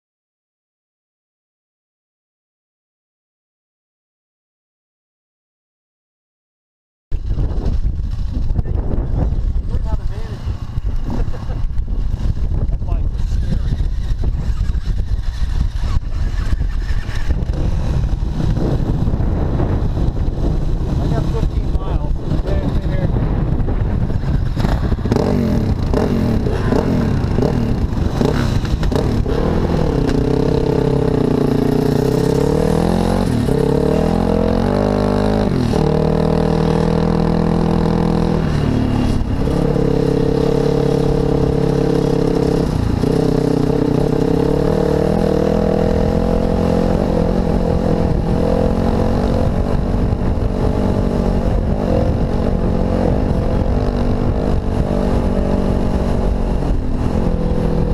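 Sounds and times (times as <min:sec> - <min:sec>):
dirt bike engine revving: 0:24.0 - 0:57.9.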